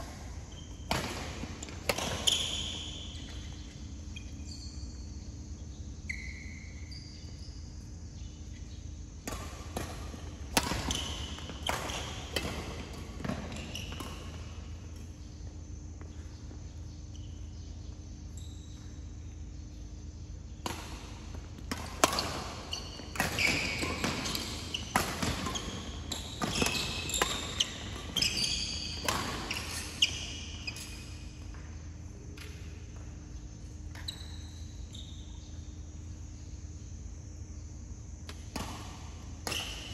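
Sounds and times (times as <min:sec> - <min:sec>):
shoes squeaking on court: 0:00.0 - 0:36.8, 0:38.2 - 0:39.9
steady low hum: 0:00.0 - 0:39.9
racket hitting shuttlecock: 0:00.8 - 0:03.5, 0:09.2 - 0:15.2, 0:20.6 - 0:30.2, 0:38.3 - 0:39.9.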